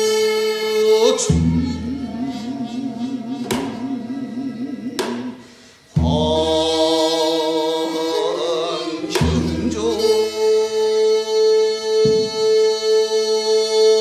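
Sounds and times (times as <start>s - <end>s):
man singing with wide vibrato: 0.0s - 14.0s
drum strokes: 1.0s - 7.4s, 9.0s - 10.5s.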